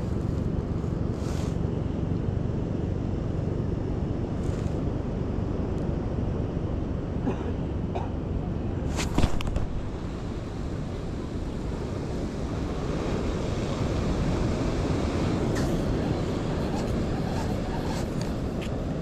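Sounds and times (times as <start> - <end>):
wind on microphone: 8.8 - 19.0
surf rushing: 8.9 - 19.0.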